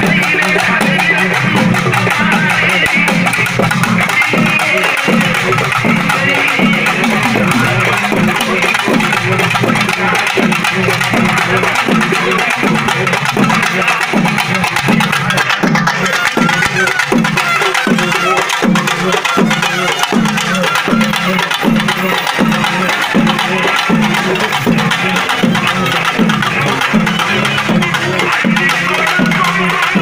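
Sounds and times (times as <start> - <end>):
music with repeating drum beat: 0.0 - 30.0.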